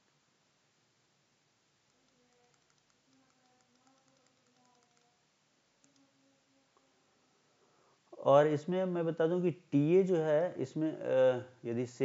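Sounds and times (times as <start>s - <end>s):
faint light clicks: 1.9s - 5.1s.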